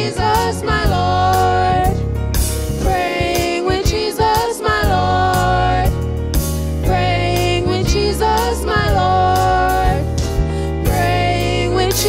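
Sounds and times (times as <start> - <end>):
children singing gospel chorus: 0.0 - 1.9, 2.8 - 5.9, 6.8 - 10.0, 10.9 - 12.0
backing track bass and drums: 0.0 - 12.0.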